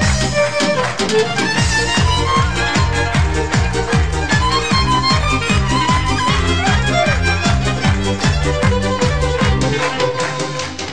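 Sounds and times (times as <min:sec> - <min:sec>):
music with quick drum beat: 0:00.0 - 0:10.9.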